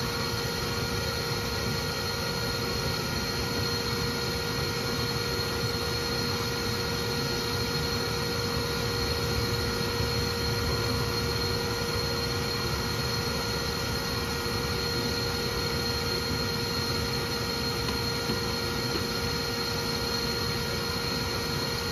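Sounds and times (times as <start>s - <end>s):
vacuum motor whine: 0.0s - 21.9s.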